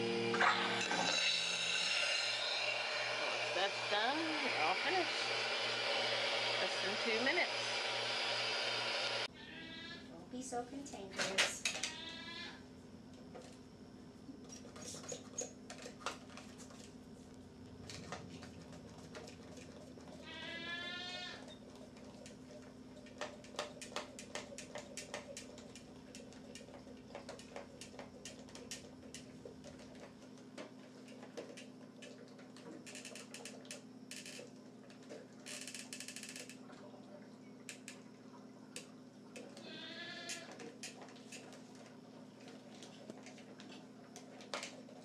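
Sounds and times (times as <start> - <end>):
goat bleating: 9.4 - 10.1, 11.9 - 12.6, 20.2 - 21.4, 39.6 - 40.5.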